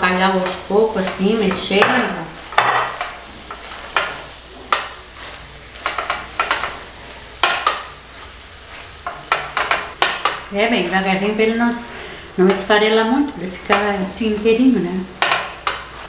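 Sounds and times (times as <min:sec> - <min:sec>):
low sizzle: 0:00.0 - 0:16.0
utensil scraping and knocking pot: 0:00.3 - 0:08.2, 0:08.8 - 0:10.5, 0:12.4 - 0:14.6, 0:15.2 - 0:16.0.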